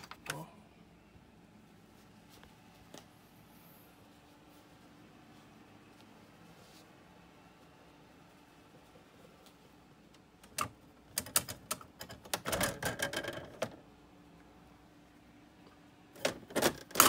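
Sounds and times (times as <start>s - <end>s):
electric typewriter clattering: 10.5s - 13.7s.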